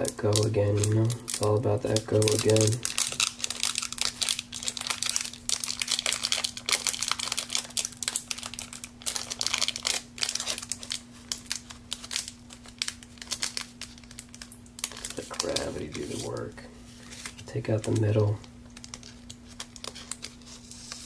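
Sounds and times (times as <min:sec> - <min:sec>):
wrapper crinkling and tearing: 0:00.0 - 0:21.0.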